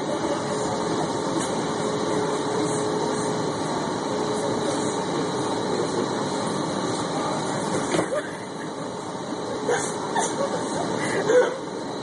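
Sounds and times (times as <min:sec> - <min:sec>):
faint constant hum: 0:00.0 - 0:12.0
streetcar cabin running noise: 0:00.0 - 0:12.0.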